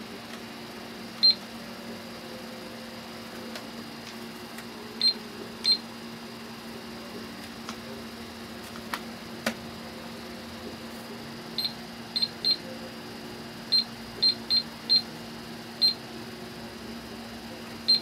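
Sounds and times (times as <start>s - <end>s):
toy calculator beeps: 13.7s - 15.1s.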